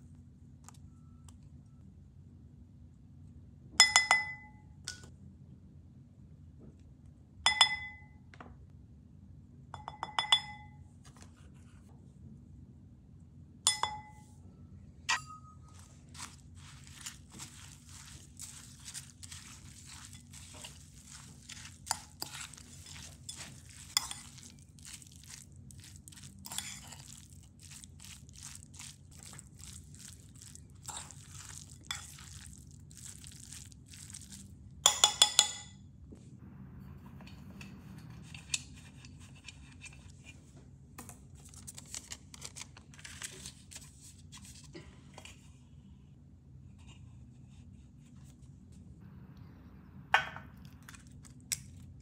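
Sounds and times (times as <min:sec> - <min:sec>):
spoon clinking against bowl: 0:03.8 - 0:05.0, 0:07.5 - 0:08.1, 0:09.8 - 0:10.7, 0:13.7 - 0:14.2, 0:15.1 - 0:16.3, 0:16.9 - 0:25.4, 0:34.8 - 0:35.7
spoon stirring thick wet mix: 0:15.1 - 0:35.6, 0:49.4 - 0:52.0.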